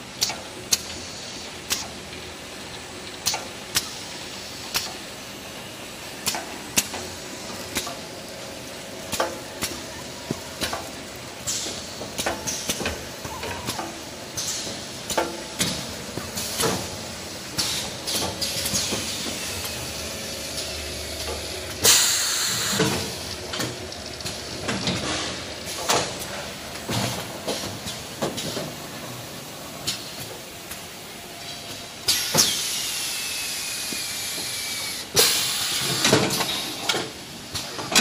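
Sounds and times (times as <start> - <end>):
pneumatic air hisses: 21.8 - 22.9, 32.1 - 36.9.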